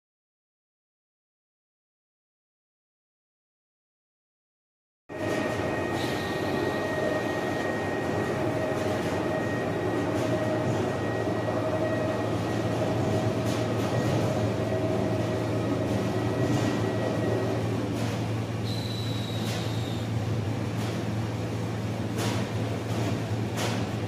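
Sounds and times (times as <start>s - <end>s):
steady motor hum: 5.1s - 24.0s
steady high tone: 5.2s - 17.8s.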